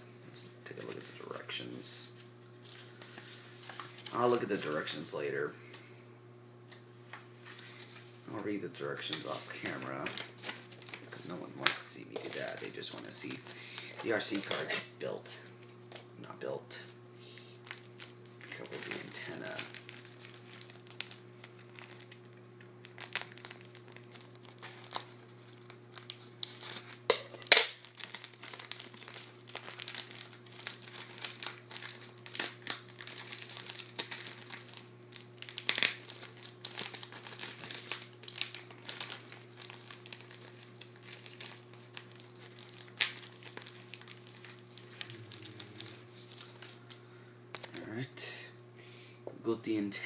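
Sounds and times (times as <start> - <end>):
plastic packaging crinkling: 0.7 - 5.2, 9.0 - 14.7, 17.6 - 48.0.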